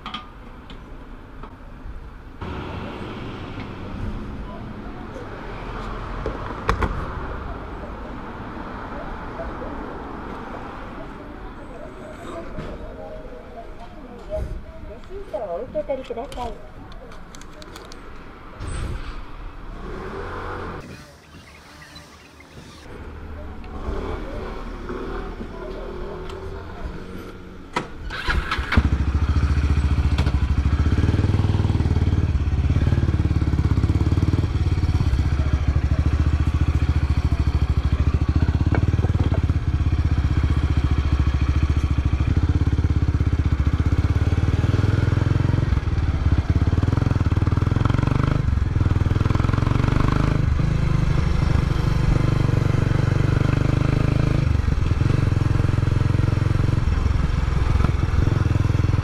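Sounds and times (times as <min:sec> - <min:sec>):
motorcycle engine riding off: 0:28.0 - 0:59.0.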